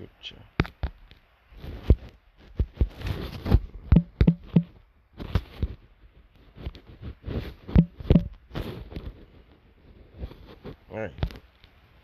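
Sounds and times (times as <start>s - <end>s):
rustling: 0.8s - 11.7s
taps and knocks on phone: 3.9s - 4.7s, 7.8s - 8.4s.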